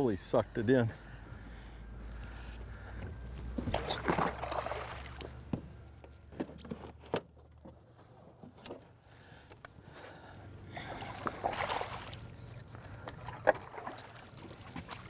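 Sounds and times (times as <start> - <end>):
fish splashing in water: 3.6 - 5.4, 10.8 - 15.0.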